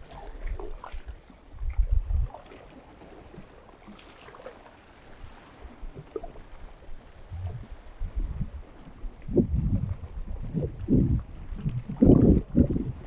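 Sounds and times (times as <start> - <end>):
wind buffeting microphone: 0.0 - 2.4, 7.2 - 13.0
water lapping against rocks: 0.0 - 13.0.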